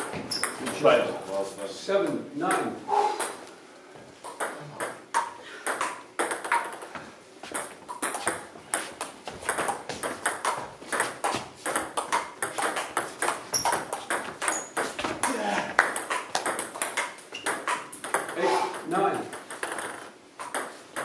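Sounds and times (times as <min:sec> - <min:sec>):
faint table tennis clicks: 0:19.3 - 0:21.0
table tennis ball clicking: 0:19.3 - 0:21.0.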